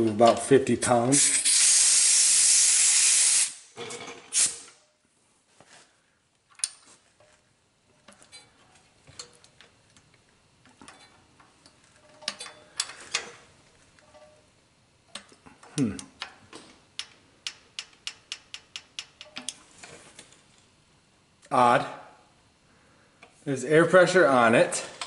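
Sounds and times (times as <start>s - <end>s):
compressed air hissing from hose: 1.2s - 3.7s, 4.3s - 4.7s
faint valve clicks: 15.1s - 19.6s.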